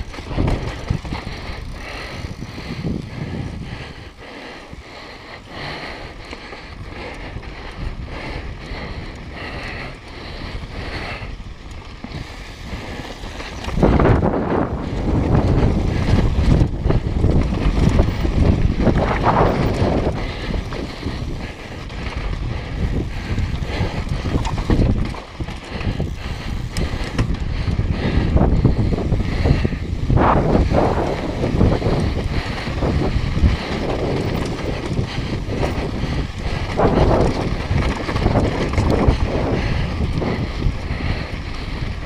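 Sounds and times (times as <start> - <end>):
tyres rumbling over gravel: 0.0 - 2.8, 11.1 - 42.0
bike tyres rolling on dirt: 0.0 - 42.0
wind noise on microphone: 0.0 - 42.0.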